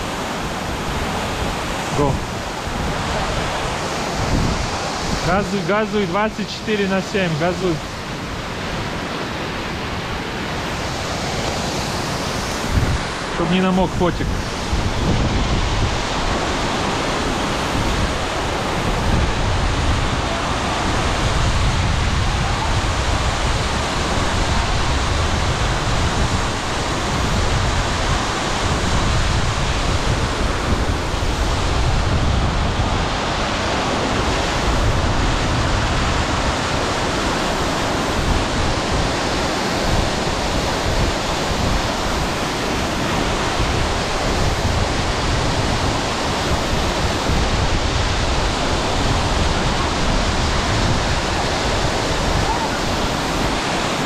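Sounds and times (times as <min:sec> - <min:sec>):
waterfall rushing over rocks: 0:00.0 - 0:54.0.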